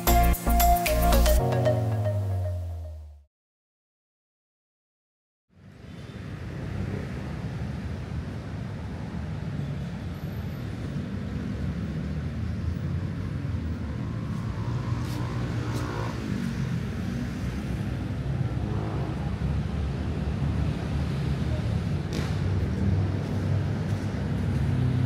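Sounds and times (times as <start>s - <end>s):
low rumble of traffic: 5.5s - 25.0s
vehicle passing by: 11.4s - 25.0s.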